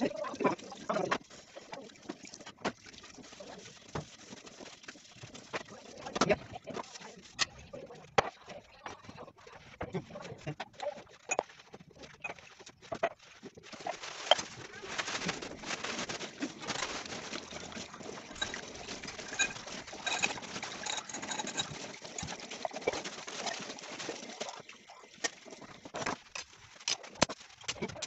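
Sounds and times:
dishes and utensils clinking: 0:18.3 - 0:23.0.

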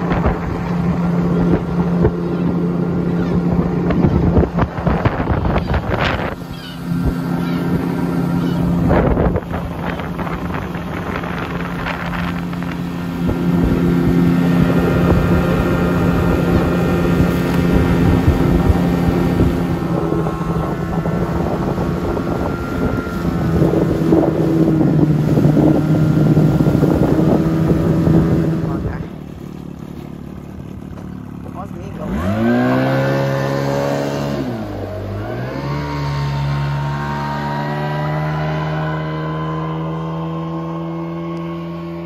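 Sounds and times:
wind buffeting microphone: 0:00.0 - 0:29.4
outboard motor humming: 0:00.0 - 0:42.0.

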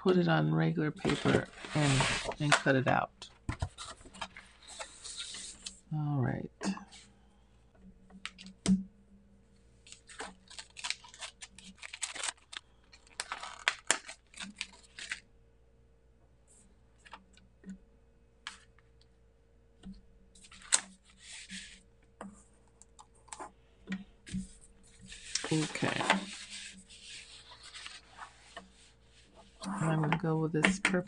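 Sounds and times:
paper rustling: 0:01.0 - 0:02.8, 0:03.5 - 0:05.8, 0:09.8 - 0:15.2, 0:20.4 - 0:21.8, 0:24.3 - 0:30.8.

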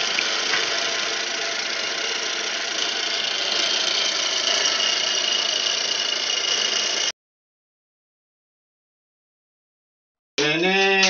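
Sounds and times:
milling machine cutting metal: 0:00.0 - 0:07.1.

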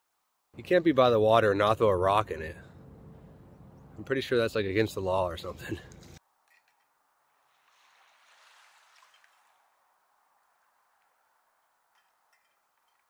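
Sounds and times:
water lapping at pebble shore: 0:07.2 - 0:12.0.

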